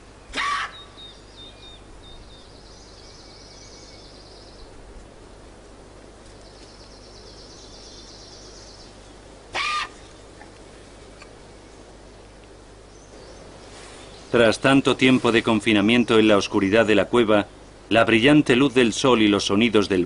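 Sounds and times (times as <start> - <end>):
harsh caw-like bird calls: 0.3 - 1.2, 9.5 - 10.2.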